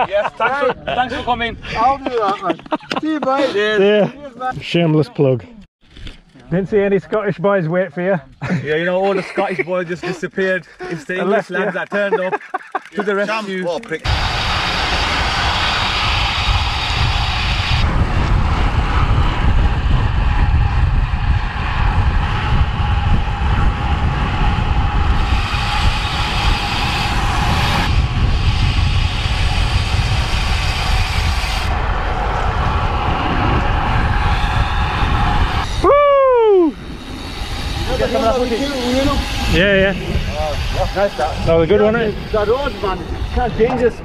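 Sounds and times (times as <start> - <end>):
heavy wind rushing over microphone: 0.0 - 2.3, 14.0 - 44.0.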